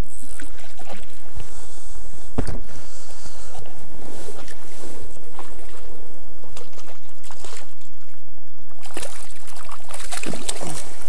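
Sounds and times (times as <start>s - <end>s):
wind rumbling on microphone: 0.0s - 11.0s
fish splashing at water surface: 8.8s - 11.0s.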